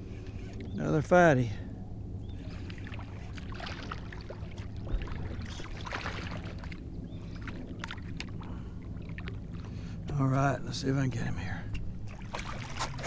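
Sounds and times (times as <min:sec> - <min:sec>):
steady low hum: 0:00.0 - 0:13.0
water sloshing and splashing: 0:02.0 - 0:10.5, 0:11.6 - 0:13.0.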